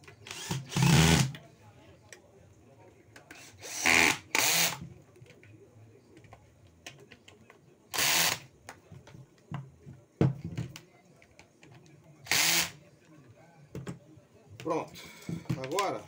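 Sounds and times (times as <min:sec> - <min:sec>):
cordless drill spinning: 0:00.3 - 0:01.4, 0:03.6 - 0:04.8, 0:07.9 - 0:08.4, 0:12.3 - 0:12.8.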